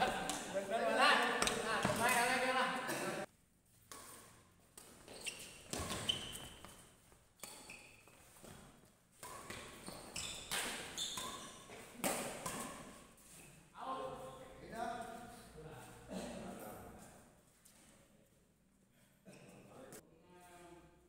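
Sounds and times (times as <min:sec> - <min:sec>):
racquets hitting shuttlecock: 0:01.2 - 0:02.5, 0:03.8 - 0:13.1
shoes squeaking on court: 0:03.9 - 0:13.6.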